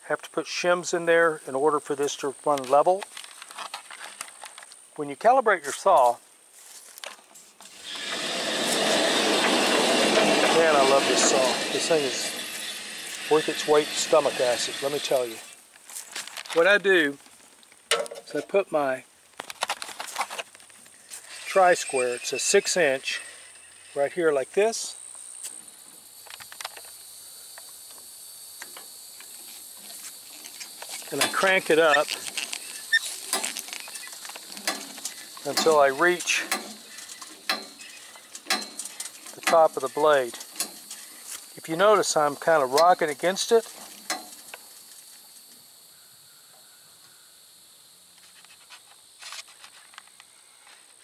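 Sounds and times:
handling rustles: 2.6 - 4.8, 15.2 - 18.6, 19.4 - 21.6
high-pitched insect drone: 7.7 - 15.6, 21.0 - 49.2.

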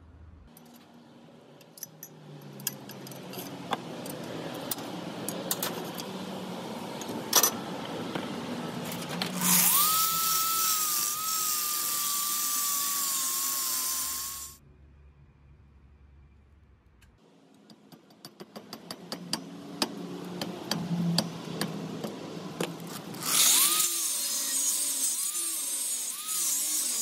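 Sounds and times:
angle grinder grinding steel: 9.3 - 14.6, 22.9 - 27.0.

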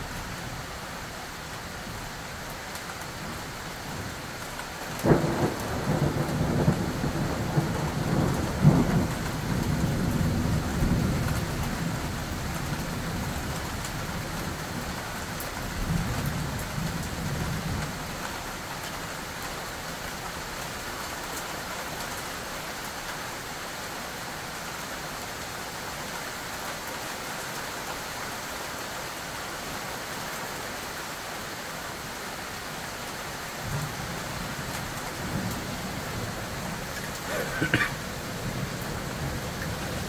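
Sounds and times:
steady rain hissing: 0.0 - 40.0
thunder rumbling: 5.0 - 11.3, 33.7 - 40.0.

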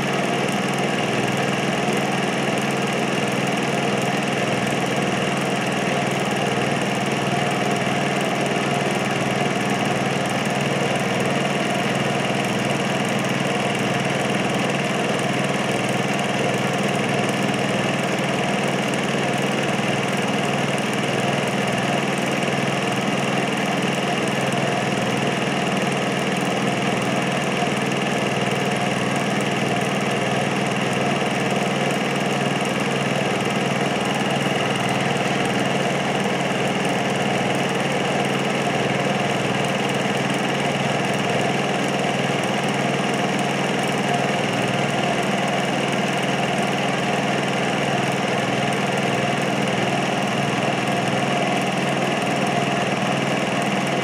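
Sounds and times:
film projector whirring: 0.0 - 54.0.

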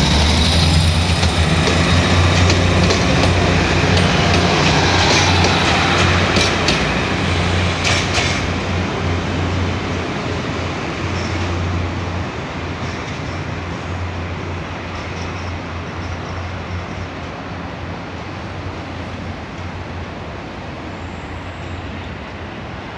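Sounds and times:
train wheel clacks: 0.0 - 8.7.

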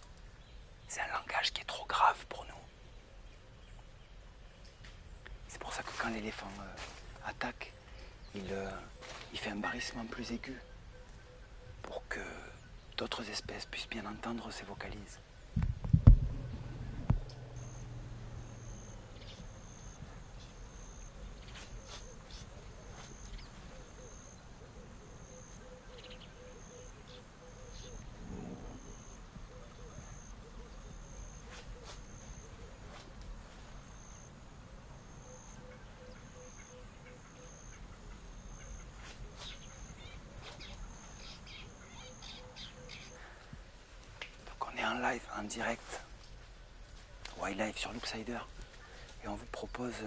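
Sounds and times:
low hiss: 0.0 - 50.0
low hoots: 16.4 - 32.9.

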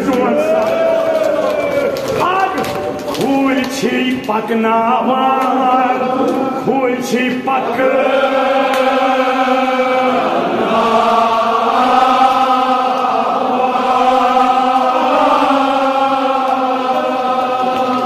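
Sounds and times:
men chanting together: 5.0 - 18.0.

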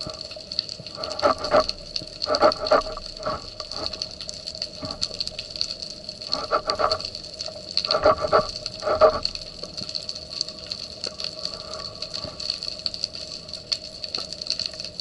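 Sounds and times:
crackling clicks: 0.0 - 15.0
high underwater whine: 0.9 - 4.2, 7.9 - 9.6.

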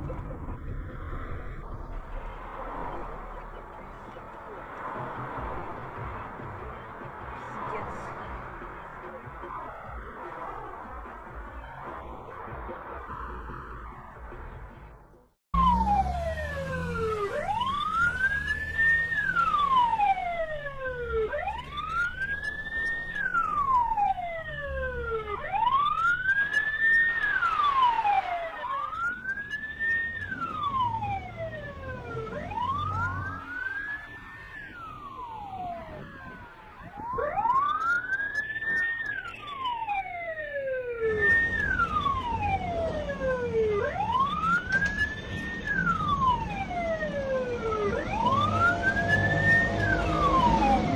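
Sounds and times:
siren wailing: 15.6 - 50.9.

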